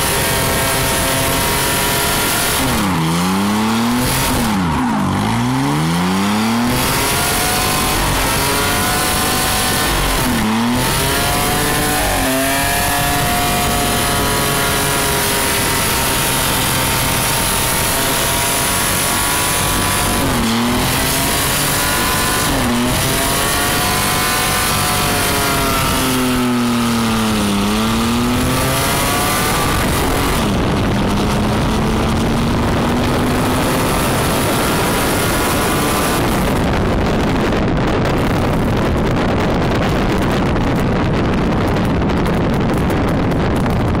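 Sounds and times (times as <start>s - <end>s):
truck engine revving: 0.0s - 39.8s
loud steady rushing noise: 0.0s - 44.0s.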